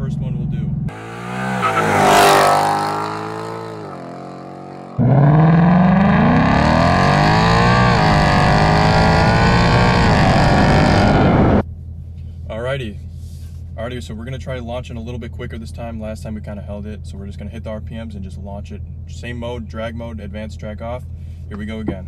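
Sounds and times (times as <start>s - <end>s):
car engine accelerating hard: 0.9s - 11.6s.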